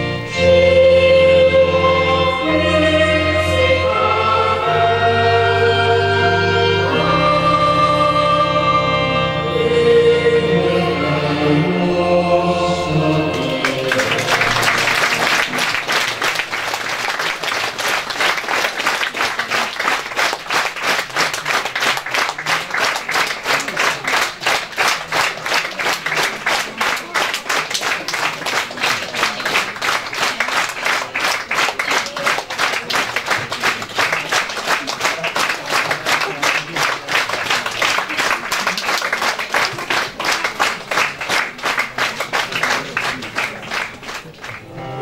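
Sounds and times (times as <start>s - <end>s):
choral music: 0.0s - 16.7s, 44.6s - 45.0s
audience rhythmic clapping: 12.8s - 44.9s.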